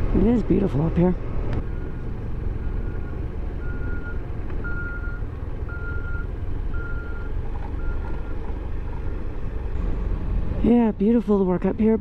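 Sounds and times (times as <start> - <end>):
low rumble: 0.0 - 12.0
backup alarm beeping: 1.6 - 8.4.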